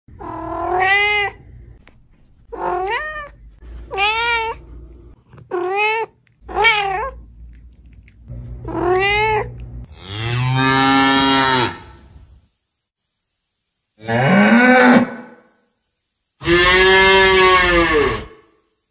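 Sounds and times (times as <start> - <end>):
cat meowing: 0.2 - 1.4, 2.5 - 4.6, 5.5 - 7.2, 8.7 - 9.5.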